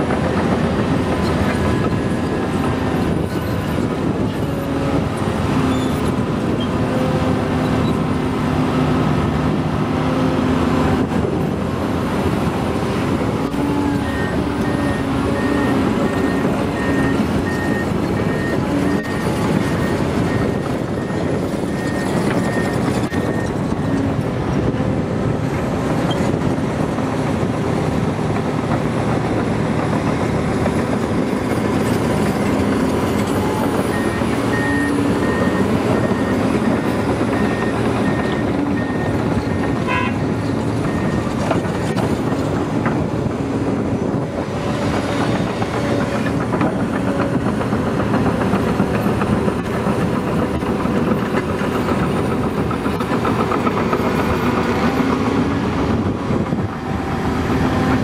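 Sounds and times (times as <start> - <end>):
excavator engine and hydraulics: 0.0 - 58.0
reversing alarm beeping: 13.9 - 24.1, 33.3 - 40.1.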